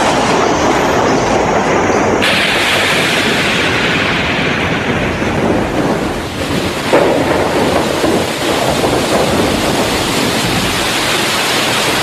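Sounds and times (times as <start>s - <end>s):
heavy rain: 0.0s - 12.0s
wind: 0.0s - 12.0s.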